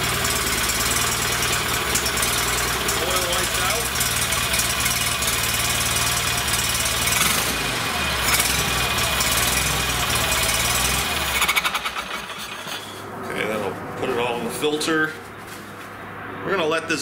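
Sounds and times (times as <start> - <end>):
garden tractor engine idling: 0.0 - 13.0.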